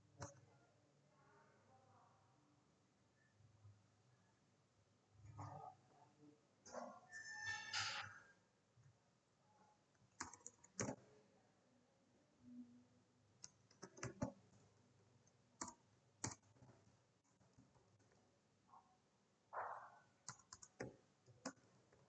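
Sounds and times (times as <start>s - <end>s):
computer keyboard keystrokes: 10.2s - 11.0s, 13.4s - 14.4s, 15.6s - 16.6s, 20.2s - 21.7s.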